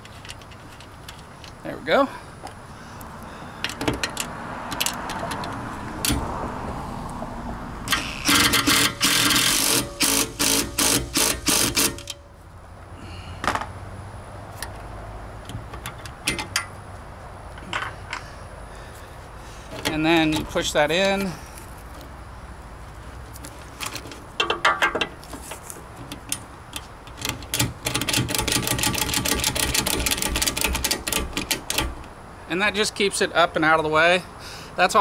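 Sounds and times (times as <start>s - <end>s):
metallic clicks of hardware: 3.6s - 6.2s, 15.4s - 16.8s, 23.8s - 32.2s
cordless drill driving a bolt: 7.9s - 12.2s.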